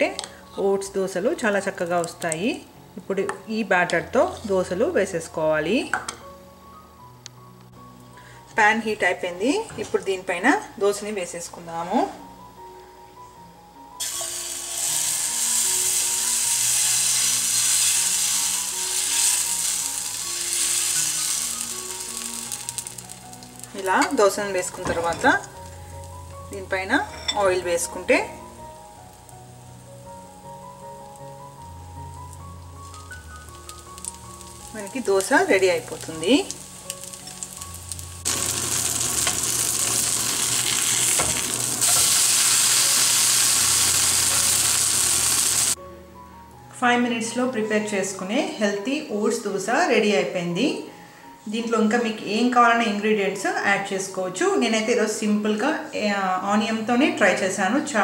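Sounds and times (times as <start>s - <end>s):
batter sizzling on a hot pan: 14.0s - 24.7s, 29.0s - 45.8s.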